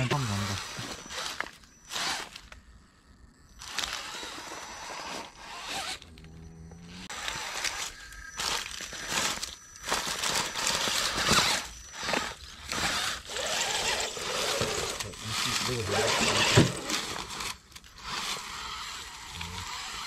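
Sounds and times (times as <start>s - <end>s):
electric motor and gears whirring: 0.0s - 20.0s
tyres scrabbling over stone: 7.1s - 20.0s.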